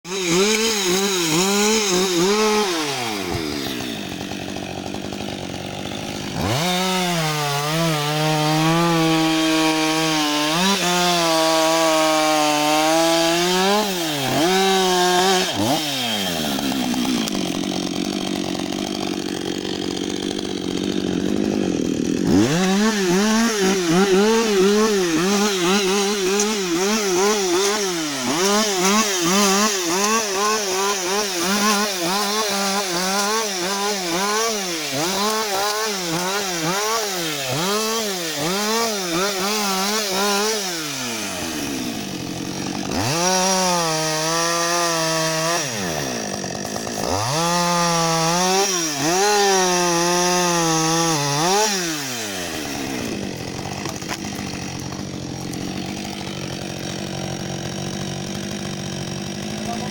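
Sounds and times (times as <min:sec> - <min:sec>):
chainsaw cutting a tree trunk: 0:00.0 - 0:59.9.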